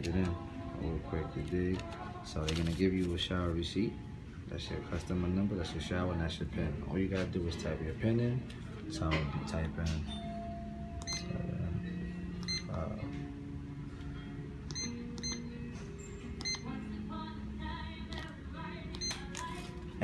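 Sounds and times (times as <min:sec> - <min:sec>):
background music with held notes: 0:00.0 - 0:20.0
keypad beeps: 0:11.0 - 0:11.4, 0:12.3 - 0:13.0, 0:14.7 - 0:16.7, 0:18.9 - 0:19.4.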